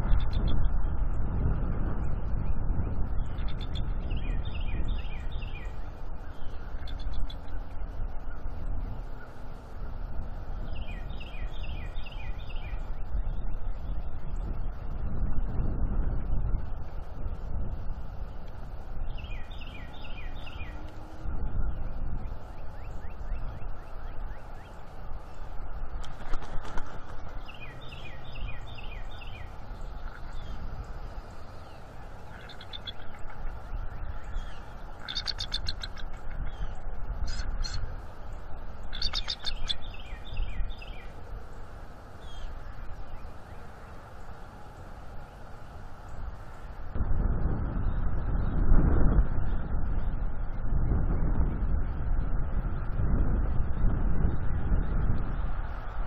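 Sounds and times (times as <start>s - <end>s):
steady low rumble: 0.0s - 56.0s
birds calling: 3.2s - 15.5s, 18.4s - 46.8s
eagle chattering call: 32.3s - 33.4s, 34.3s - 36.4s, 38.9s - 40.0s.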